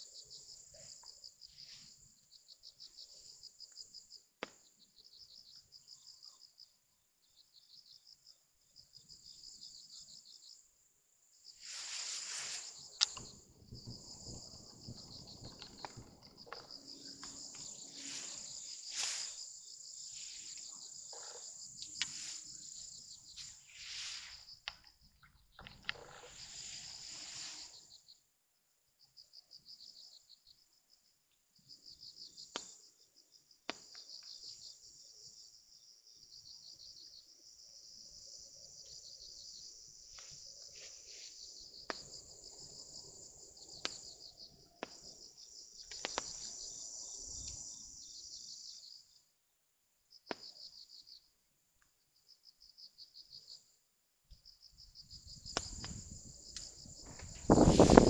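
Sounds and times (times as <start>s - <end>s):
faint insect trilling: 11.4s - 28.2s, 52.2s - 58.0s.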